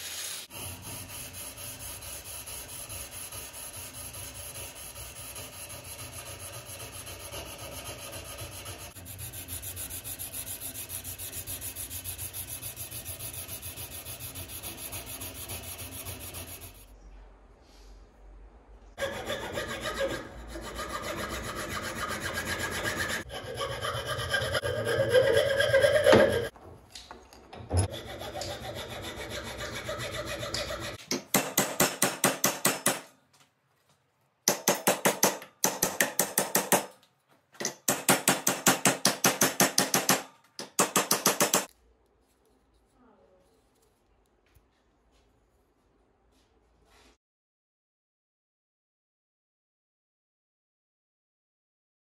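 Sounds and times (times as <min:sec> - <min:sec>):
hacksaw cutting wood: 0:19.0 - 0:26.5, 0:27.9 - 0:33.0.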